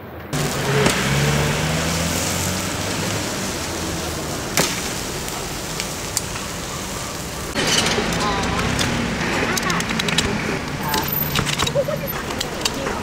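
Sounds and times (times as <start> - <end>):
chicken sizzling on a grill: 0.4 - 9.2.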